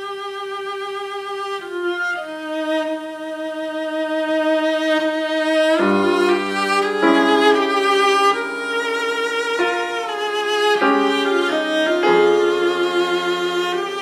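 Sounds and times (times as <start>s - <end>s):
cello melody: 0.0s - 14.0s
piano accompaniment: 5.0s - 14.0s.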